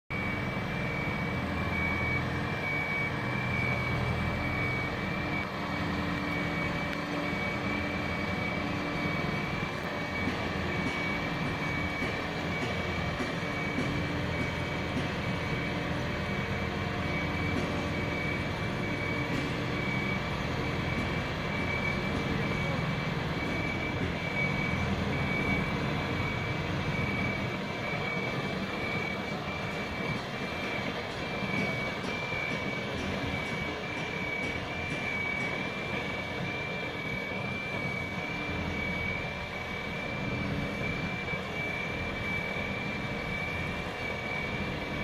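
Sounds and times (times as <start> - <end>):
hoist engine humming: 0.1 - 45.0.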